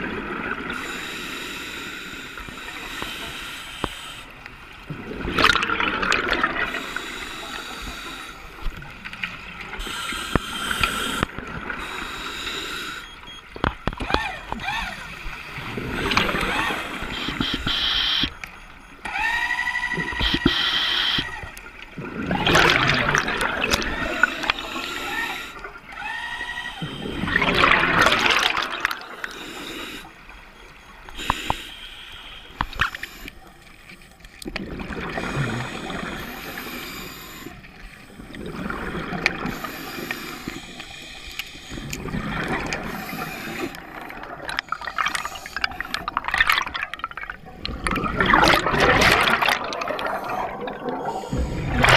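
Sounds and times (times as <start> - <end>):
regulator inhalation hiss: 0.8 - 4.3, 9.8 - 13.0, 29.2 - 30.2, 31.1 - 33.4, 35.2 - 38.2, 39.5 - 41.8, 42.9 - 43.8
exhaled bubbles underwater: 4.8 - 7.0, 14.0 - 17.4, 21.8 - 26.0, 26.7 - 31.2, 34.3 - 40.8, 41.7 - 51.9.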